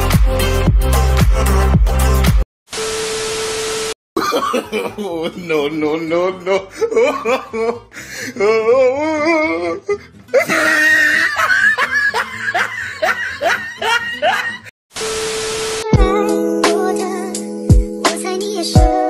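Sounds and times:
music: 0.0 - 2.4, 15.9 - 19.0
laughter: 4.2 - 5.4, 6.5 - 7.9, 10.3 - 14.7.

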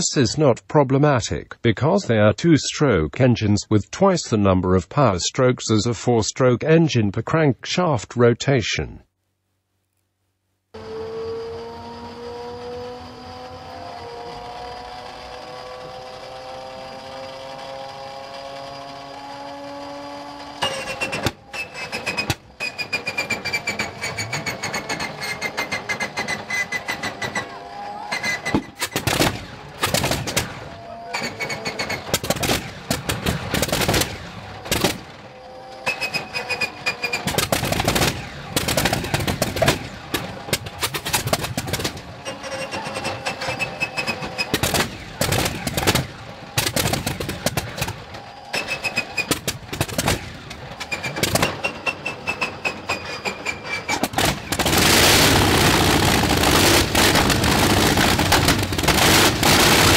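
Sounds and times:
short falling whines: 10.7 - 40.6, 41.8 - 46.6, 47.4 - 59.9
radial aircraft engine starting: 10.8 - 59.9
engine bangs and pops: 20.3 - 27.5, 28.2 - 42.4, 43.0 - 59.9.

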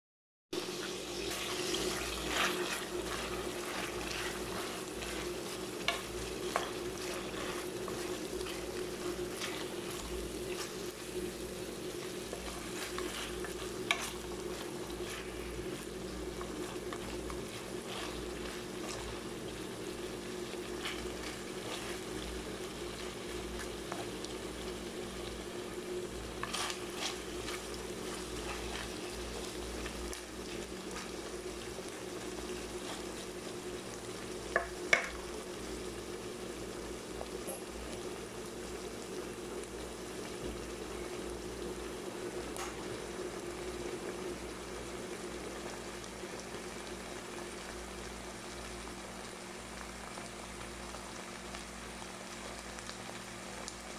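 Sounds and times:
steady low hum: 0.6 - 46.4
food sizzling in a wok: 0.6 - 53.9
spatula scraping a pan: 0.8 - 11.1, 11.9 - 19.3, 20.6 - 22.3, 26.3 - 31.2.

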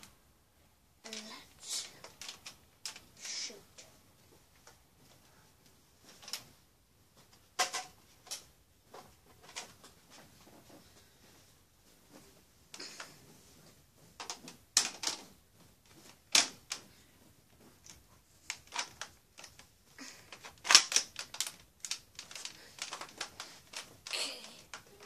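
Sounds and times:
plastic toy blaster clacks: 20.3 - 24.9.

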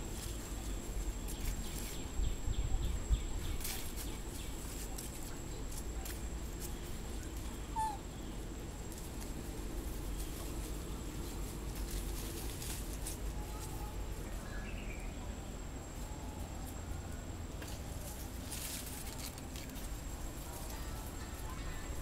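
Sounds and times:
branches and leaves rustling: 0.0 - 22.0
low outdoor rumble: 0.0 - 22.0.

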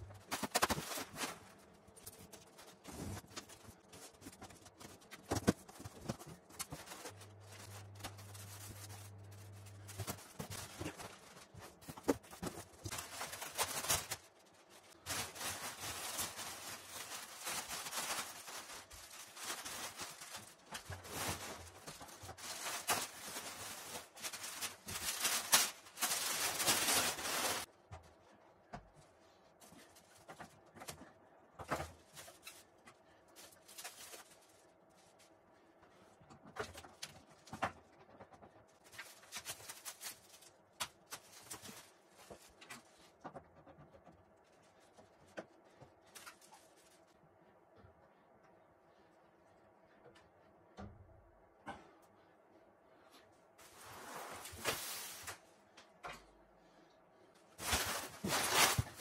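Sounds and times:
plastic wrapping rustling: 0.0 - 27.7, 31.9 - 35.4, 38.8 - 43.2, 44.4 - 47.2, 53.6 - 55.5, 57.6 - 59.0.

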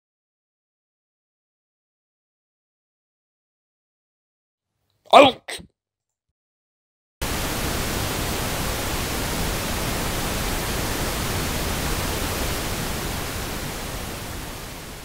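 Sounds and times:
pink noise hiss: 7.2 - 15.0.

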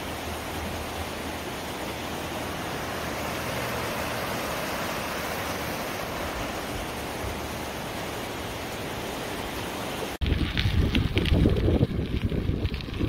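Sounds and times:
river rushing over rapids: 0.0 - 10.2.

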